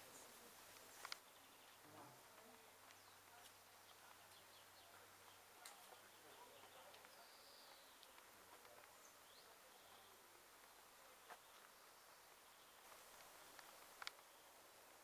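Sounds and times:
faint click: 0:00.8 - 0:01.2, 0:13.2 - 0:14.3
faint bird chirps: 0:02.9 - 0:14.6.

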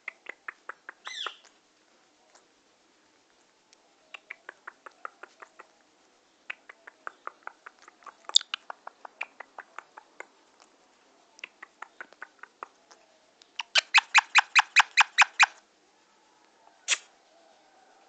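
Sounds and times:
parakeet chattering: 0:00.0 - 0:01.4, 0:06.5 - 0:10.3, 0:13.6 - 0:15.6.

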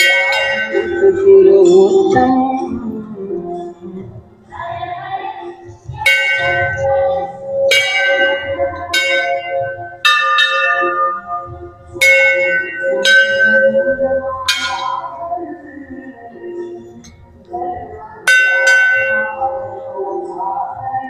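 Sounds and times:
brass bells ringing: 0:00.0 - 0:01.2, 0:06.0 - 0:15.3, 0:18.3 - 0:19.6.

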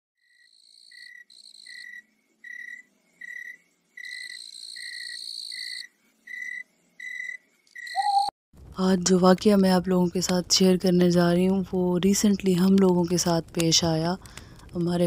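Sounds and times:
crickets chirping: 0:00.2 - 0:08.3
high buzzy insect trills: 0:00.2 - 0:08.3.

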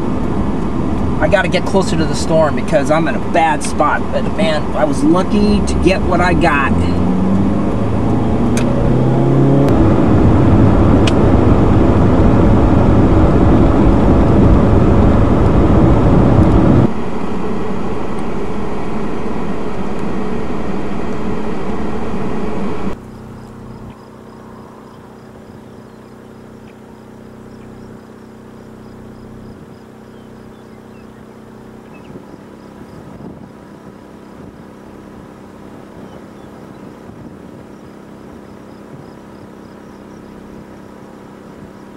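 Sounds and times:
car engine and road noise: 0:00.0 - 0:41.9.

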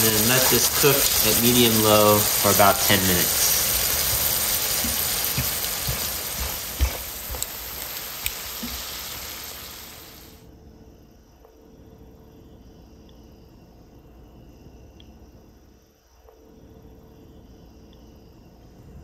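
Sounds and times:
food sizzling in a pan: 0:00.0 - 0:10.4
faint hiss: 0:00.0 - 0:10.5.

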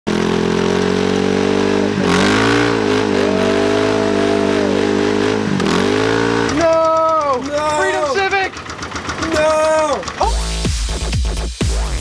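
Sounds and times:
engine revving high: 0:00.1 - 0:06.9.

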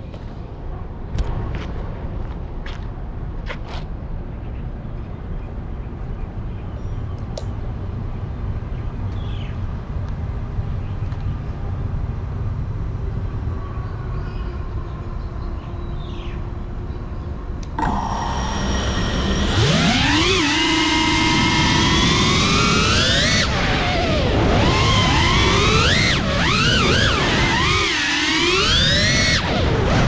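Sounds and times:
low outdoor rumble: 0:00.0 - 0:30.0
quadcopter motors whining: 0:17.6 - 0:30.0.

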